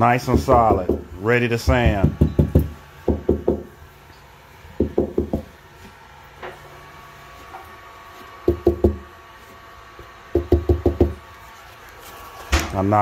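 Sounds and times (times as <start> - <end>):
knuckles rapping on drywall: 0.3 - 3.7, 8.5 - 9.1, 10.4 - 11.2.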